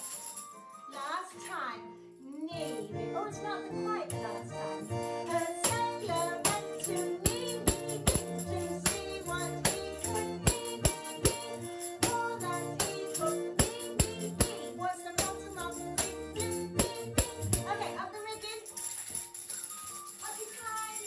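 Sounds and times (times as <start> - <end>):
tambourine jingling: 0.0 - 0.9, 4.3 - 21.0
children's song with beat: 2.5 - 21.0.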